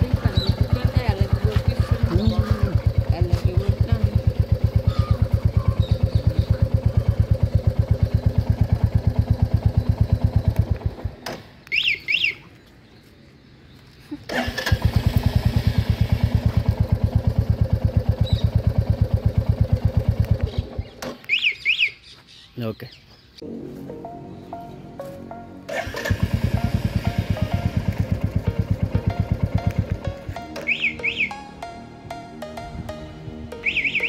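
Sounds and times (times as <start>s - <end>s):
motorcycle engine idling: 0.0s - 11.9s, 14.3s - 21.8s, 25.7s - 31.7s
alarm siren chirps: 26.4s - 34.0s.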